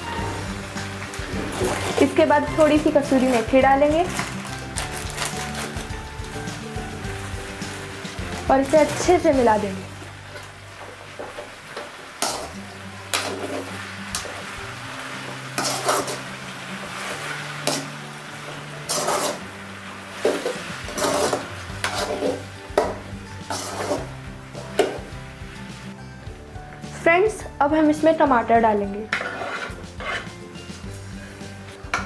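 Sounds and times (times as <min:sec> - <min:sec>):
faint frying sizzle: 0:00.0 - 0:32.0
metal spatula scraping vegetables in pan: 0:00.1 - 0:06.7, 0:12.2 - 0:14.6, 0:15.2 - 0:25.1, 0:29.0 - 0:30.9.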